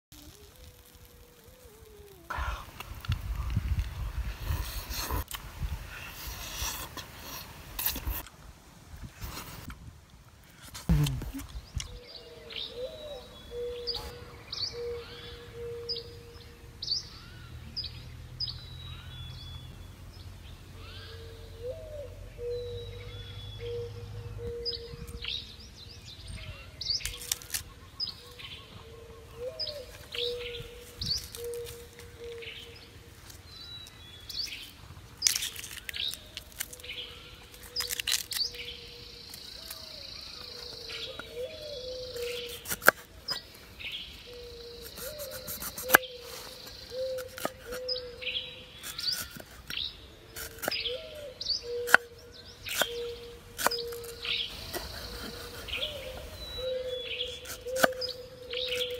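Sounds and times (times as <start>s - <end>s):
forest birds chirping: 0.1s - 8.4s, 10.4s - 58.9s
lower bird call: 10.9s - 19.9s, 20.7s - 58.9s
handling of stalks: 33.1s - 38.7s.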